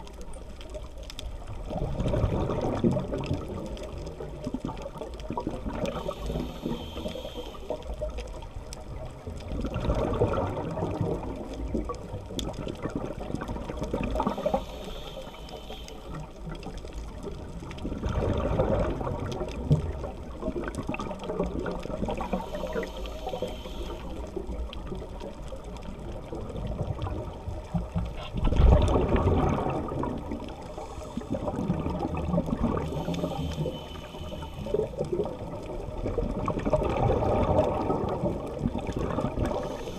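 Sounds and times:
exhaled bubbles rushing: 1.5 - 6.8, 7.7 - 14.6, 16.2 - 23.4, 24.2 - 33.7, 34.6 - 39.9
regulator inhale hiss: 5.9 - 8.0, 14.1 - 16.4, 22.0 - 24.4, 30.5 - 31.6, 32.8 - 35.1, 39.4 - 39.9.

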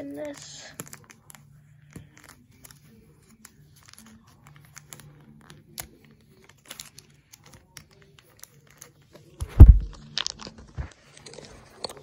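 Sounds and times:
plastic packaging crinkling: 9.5 - 12.0.

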